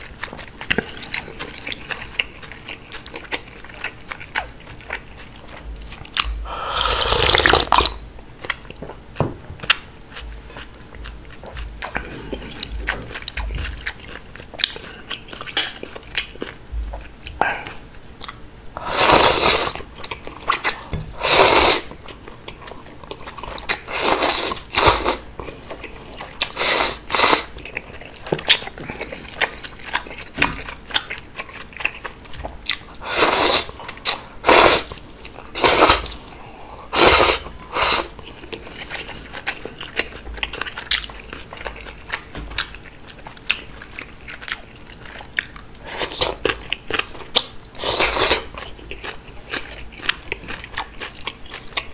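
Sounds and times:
wet chewing: 0.0s - 9.0s, 9.6s - 18.4s, 19.0s - 51.9s
slurping noodles: 6.6s - 7.9s, 18.8s - 19.8s, 21.2s - 21.9s, 23.9s - 25.3s, 26.5s - 27.5s, 33.0s - 33.8s, 34.4s - 34.9s, 35.5s - 36.2s, 36.9s - 38.1s.

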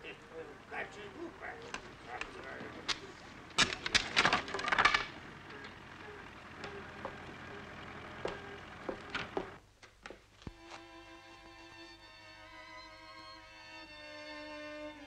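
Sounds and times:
wooden fence slats cracking: 1.6s - 7.7s.

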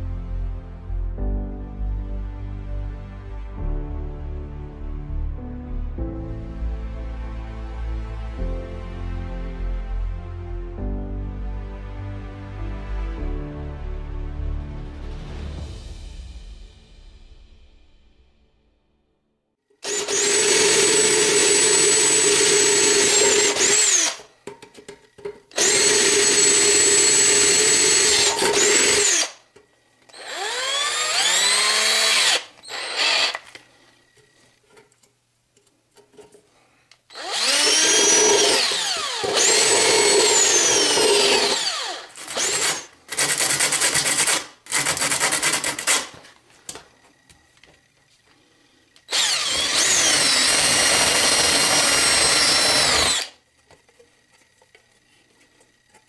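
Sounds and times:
drill bit boring through thin steel: 19.8s - 24.2s, 25.6s - 29.4s, 30.1s - 33.4s, 37.1s - 46.0s, 49.1s - 53.4s
power drill whining: 19.8s - 24.3s, 25.5s - 29.4s, 30.1s - 33.6s, 37.1s - 46.1s, 49.1s - 53.4s.

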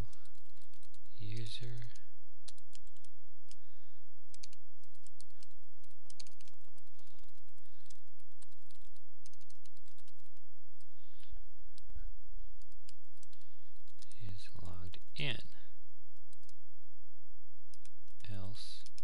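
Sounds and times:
steady low hum: 0.0s - 19.0s
keyboard keystrokes clicking: 4.3s - 10.3s.

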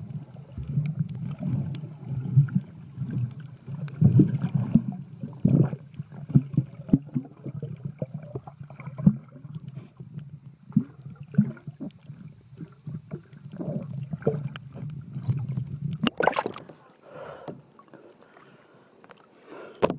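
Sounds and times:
underwater rumble of moving water: 0.0s - 18.8s
underwater clicks: 8.8s - 16.8s
bubbles popping: 10.7s - 14.5s, 15.2s - 16.6s.

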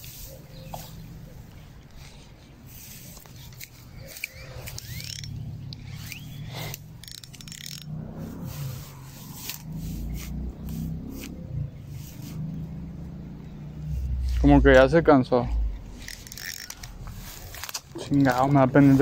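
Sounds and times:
scraping and rustling handling noise: 15.9s - 19.0s.

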